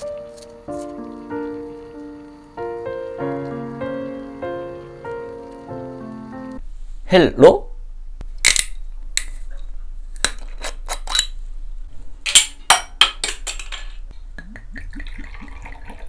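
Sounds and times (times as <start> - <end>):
liquid glugging into glass: 14.7 - 16.0.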